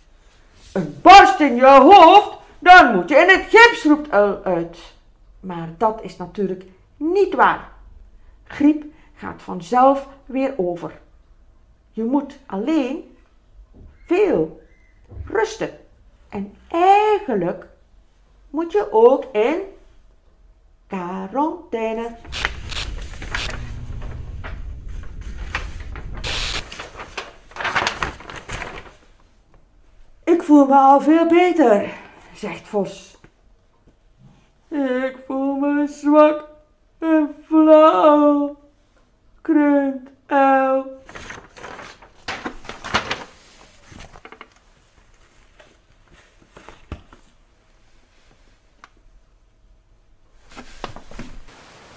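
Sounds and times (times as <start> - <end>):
paper sheet swish: 22.0 - 29.1
paper rustling and crackling: 22.0 - 29.3, 41.0 - 47.3.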